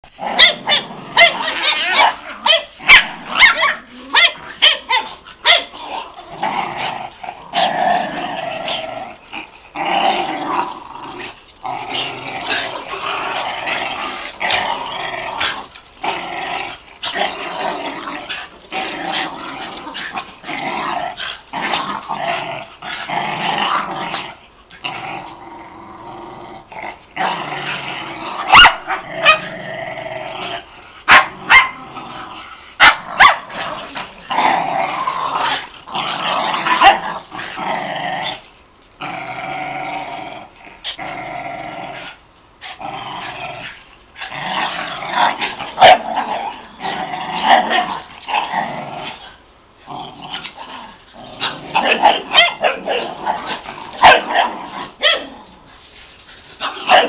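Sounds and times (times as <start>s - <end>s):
dogs growling: 0.0s - 57.0s
dogs barking and yipping: 0.3s - 5.8s, 28.4s - 29.5s, 31.0s - 31.8s, 32.8s - 33.6s, 36.6s - 37.2s, 45.4s - 46.2s, 51.4s - 55.4s, 56.4s - 57.0s.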